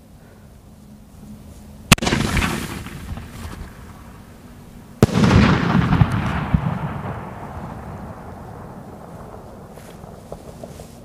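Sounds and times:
firework bang with crackling tail: 0:01.9 - 0:04.2, 0:05.0 - 0:10.7.

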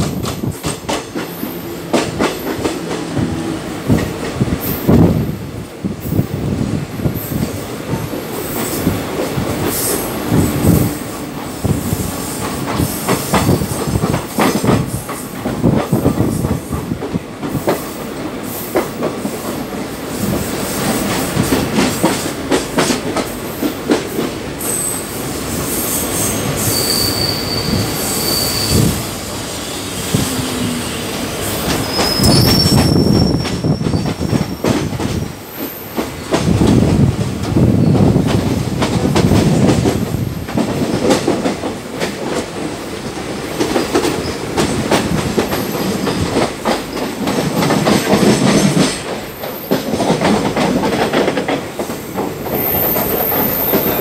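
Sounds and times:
train wheels rumbling and clattering: 0:00.0 - 0:54.0
wheel squeal: 0:25.9 - 0:29.0, 0:31.6 - 0:34.9.

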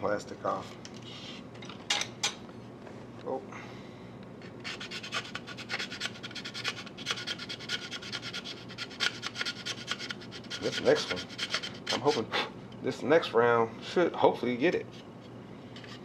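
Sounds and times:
hand tool scraping plastic: 0:04.4 - 0:12.2.

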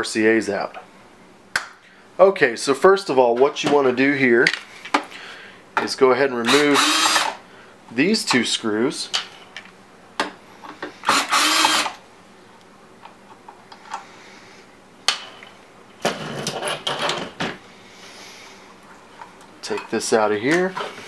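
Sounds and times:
cordless drill running: 0:06.5 - 0:07.4, 0:11.1 - 0:12.0.

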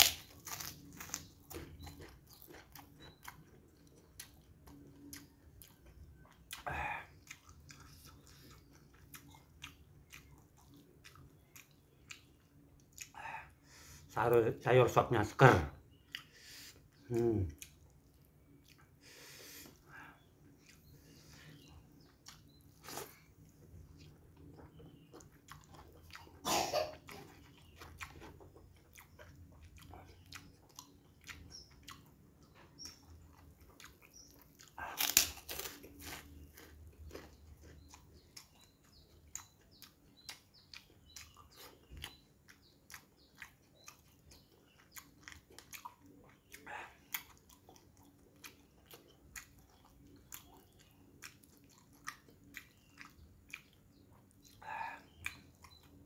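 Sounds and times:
crunchy cracker bites: 0:00.0 - 0:02.9, 0:34.7 - 0:37.3
soft chewing and mouth clicks: 0:00.0 - 0:56.0.

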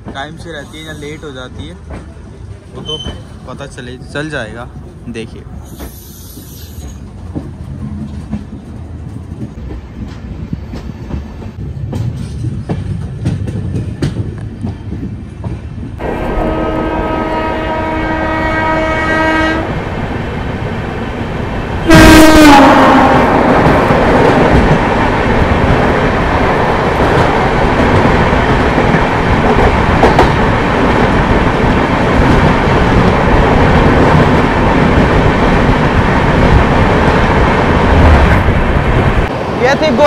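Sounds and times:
train horn: 0:16.0 - 0:19.8, 0:21.9 - 0:23.5.

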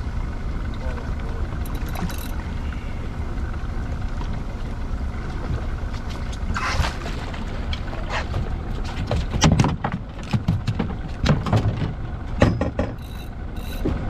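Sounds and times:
wind and sea rumble: 0:00.0 - 0:14.0
knocks and clatters on deck: 0:09.0 - 0:13.0.

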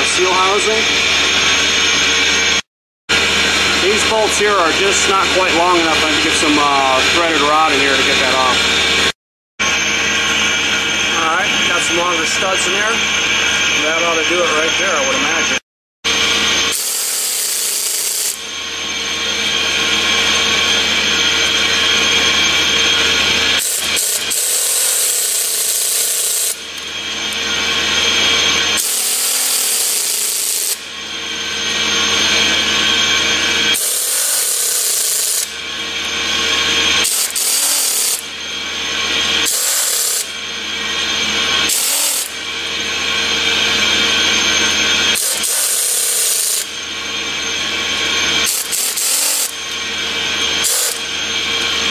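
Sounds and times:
pneumatic air wrench bursts: 0:16.7 - 0:18.4, 0:23.6 - 0:26.8, 0:28.8 - 0:30.8, 0:33.7 - 0:35.5, 0:37.0 - 0:38.3, 0:39.4 - 0:40.3, 0:41.7 - 0:42.4, 0:45.1 - 0:46.7, 0:48.4 - 0:49.7, 0:50.6 - 0:51.1.

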